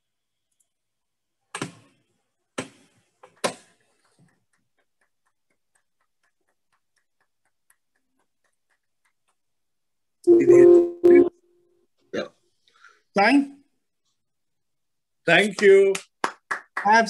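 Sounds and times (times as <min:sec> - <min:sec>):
faint clock ticking: 0:03.7 - 0:10.2.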